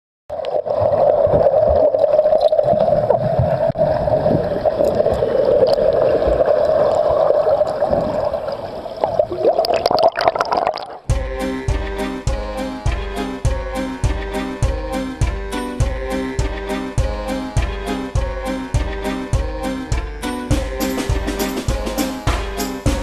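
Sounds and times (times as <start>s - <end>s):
muffled underwater water rushing: 0.3s - 11.1s.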